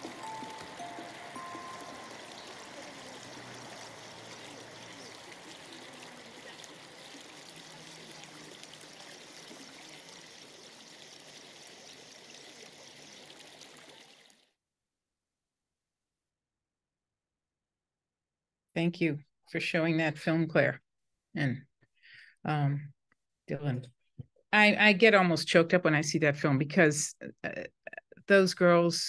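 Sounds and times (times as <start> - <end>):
music notes: 0.0 - 4.2
flowing water: 0.0 - 14.5.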